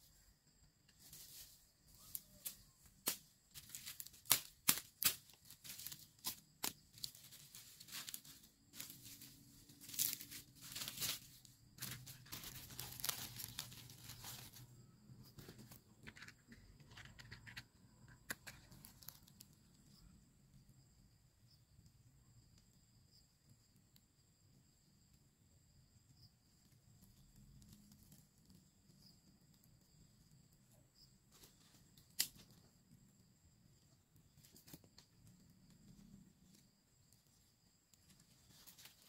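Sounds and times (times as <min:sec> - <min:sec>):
leaves rustling and crackling: 0:00.9 - 0:14.8, 0:38.0 - 0:39.0
twigs snapping: 0:02.1 - 0:14.6, 0:32.0 - 0:32.6.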